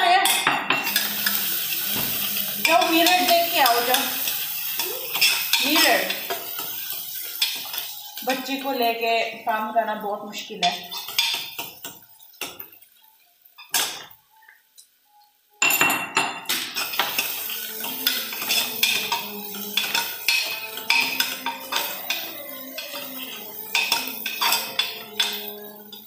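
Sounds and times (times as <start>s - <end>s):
metal spoon scraping in a pan: 0.3s - 8.7s, 10.7s - 12.5s, 16.8s - 26.0s.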